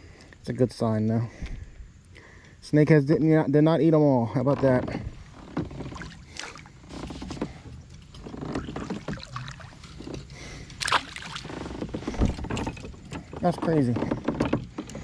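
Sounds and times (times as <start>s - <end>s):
water lapping: 4.9s - 15.0s
fish splashing into water: 8.8s - 9.9s, 10.8s - 11.7s.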